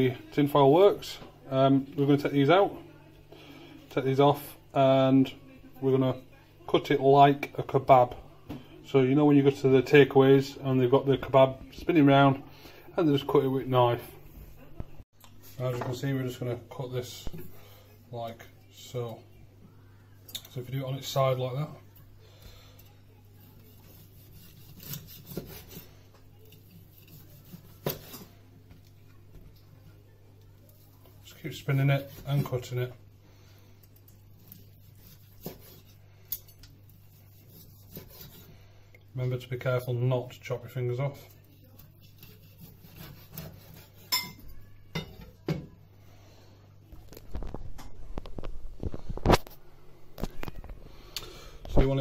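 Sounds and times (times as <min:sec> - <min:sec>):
knife slicing meat: 0:23.4 - 0:28.3, 0:34.4 - 0:36.0, 0:37.0 - 0:38.5, 0:41.6 - 0:44.3.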